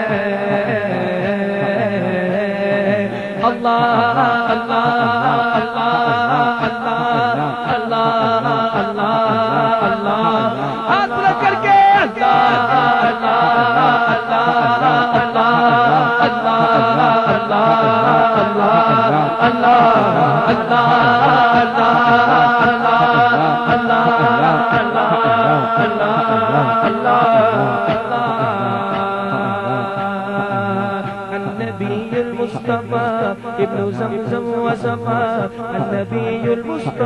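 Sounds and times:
men chanting through a pa: 0.0 - 37.0.

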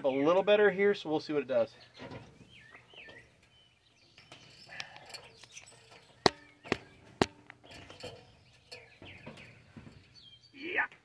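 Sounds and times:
footsteps on metal ladder rungs: 1.9 - 10.5.

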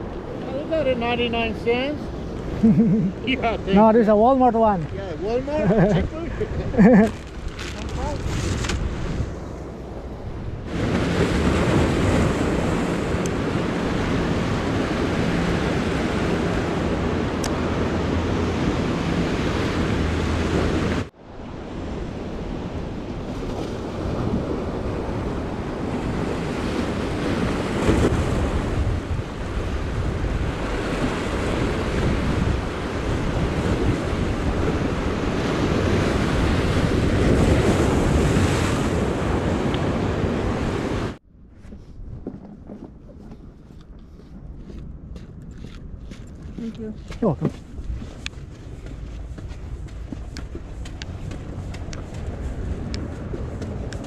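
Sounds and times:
ocean surf breaking on rocks: 0.0 - 41.2
wind buffeting microphone: 0.0 - 54.0.

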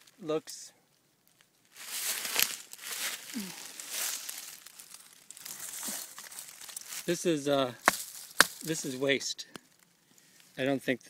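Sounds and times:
dry leaves rustling and crunching: 1.3 - 9.2.

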